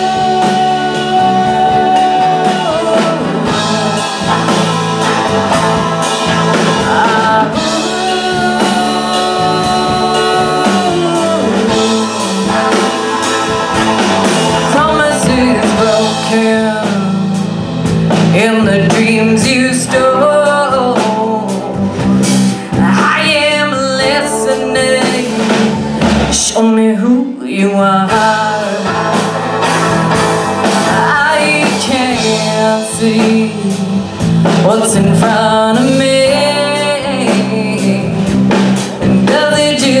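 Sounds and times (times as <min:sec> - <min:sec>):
electric bass: 0:00.0 - 0:27.1, 0:27.9 - 0:40.0
woman singing: 0:00.0 - 0:29.7, 0:30.5 - 0:40.0
drum kit: 0:00.0 - 0:40.0
electric guitar: 0:00.0 - 0:40.0.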